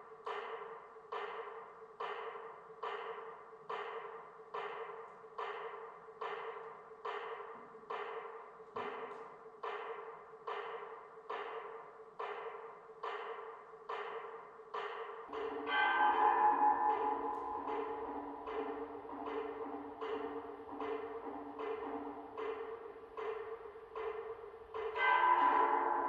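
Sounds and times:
ringing percussion note: 15.3 - 21.1, 24.9 - 26.0.

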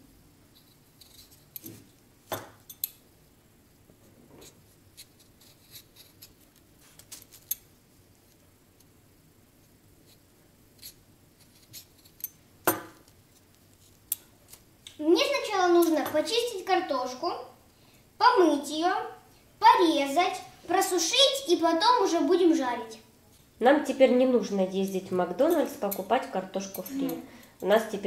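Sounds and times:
peeler scraping potato skin: 4.9 - 7.6.

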